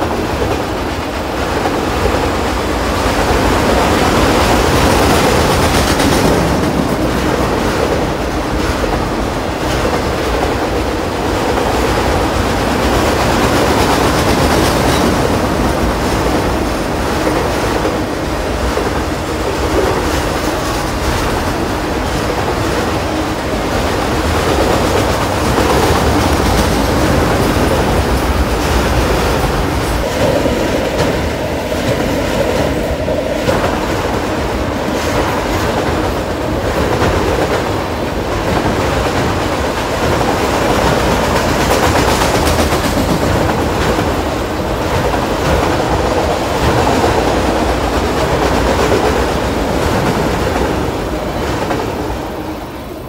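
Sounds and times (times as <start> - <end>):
freight train wheels rumbling: 0.0 - 53.0.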